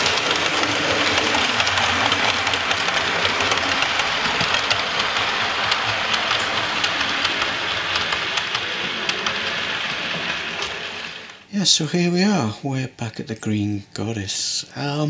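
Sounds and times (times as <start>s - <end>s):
wheels clicking on rails: 0.0s - 11.5s
model train running: 0.0s - 12.4s.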